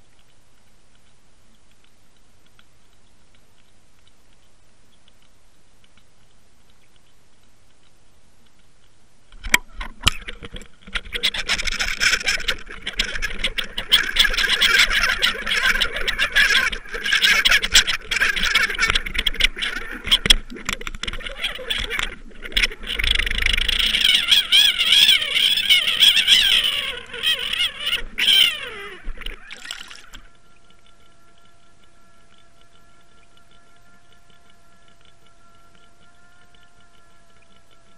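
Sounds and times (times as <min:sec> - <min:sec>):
wavering whine: 0:27.7 - 0:37.9
rushing water: 0:28.0 - 0:30.3.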